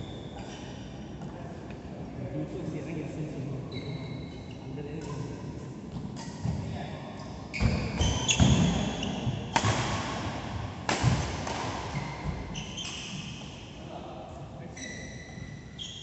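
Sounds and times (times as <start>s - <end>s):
shoes squeaking on court: 3.7s - 4.6s, 7.2s - 9.6s, 11.9s - 13.6s, 14.7s - 16.0s
racket striking shuttlecock: 9.5s - 12.0s.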